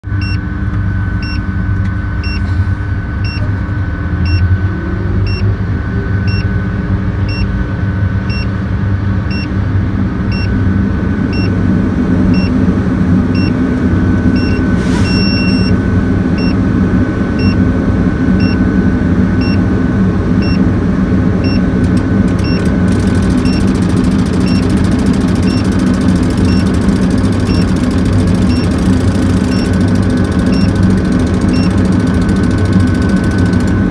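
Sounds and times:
crane diesel engine running: 0.0 - 33.9
thin high whine: 13.4 - 16.6
faint short high beeps: 14.4 - 15.7.

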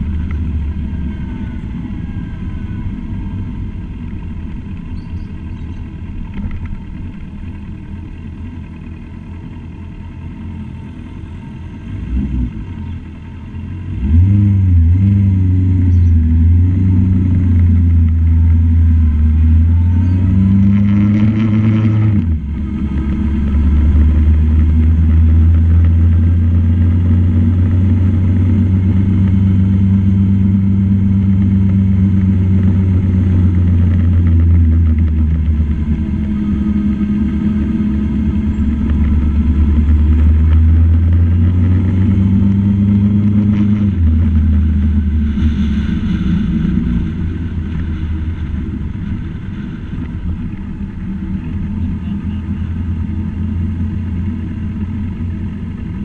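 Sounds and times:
road and wind noise: 0.0 - 56.0
vehicle engine running: 0.0 - 56.0.

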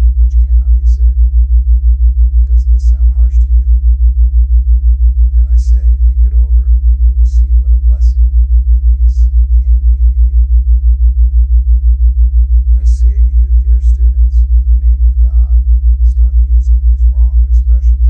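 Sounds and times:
low pulsing tone: 0.0 - 18.0
faint voice: 0.2 - 1.2, 2.5 - 3.7, 5.4 - 10.4, 12.8 - 18.0.

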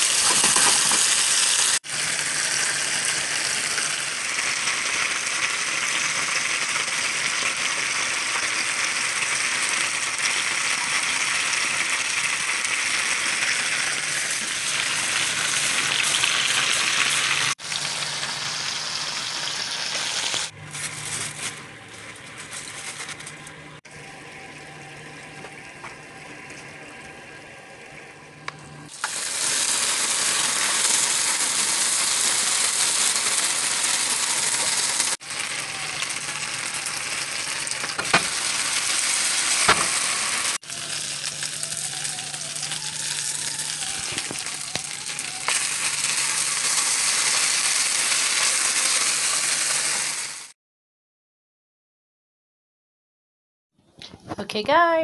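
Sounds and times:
food sizzling in a frying pan: 0.0 - 21.5, 28.9 - 50.5.

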